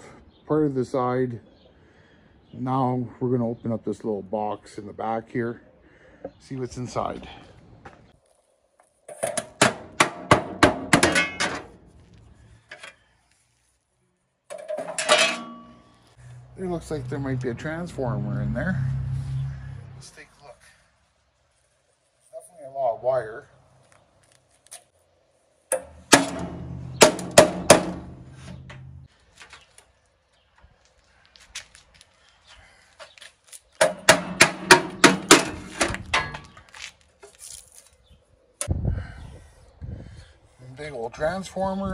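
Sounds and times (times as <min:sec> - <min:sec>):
hammer striking sheet metal: 0:25.7 - 0:28.9, 0:33.8 - 0:36.4
metal panel ringing: 0:25.7 - 0:29.0.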